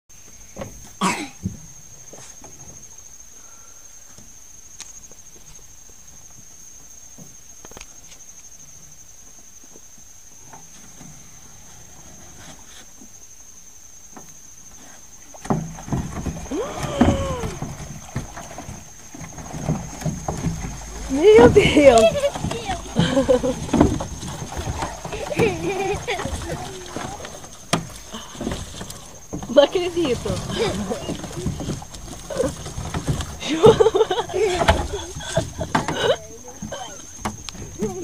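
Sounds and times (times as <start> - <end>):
fish splashing and thrashing: 15.3 - 38.0
knocks and rope sounds: 15.3 - 38.0
rising and falling cry: 16.5 - 17.7.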